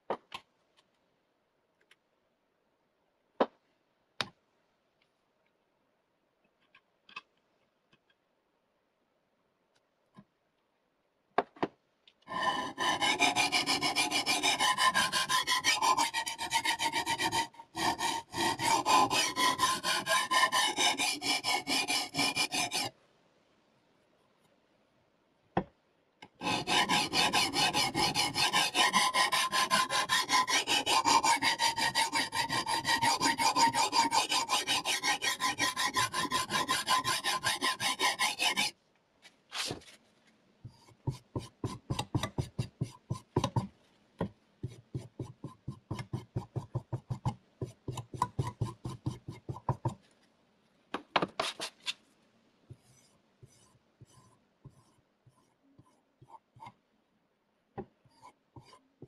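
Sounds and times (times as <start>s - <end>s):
sharpening stone rasping on blade: 12.3s - 22.9s, 26.4s - 38.7s.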